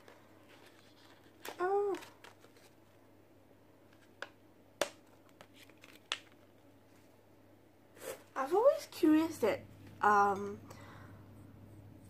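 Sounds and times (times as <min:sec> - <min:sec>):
plastic sachets crinkling: 0:00.0 - 0:03.0, 0:03.9 - 0:06.7.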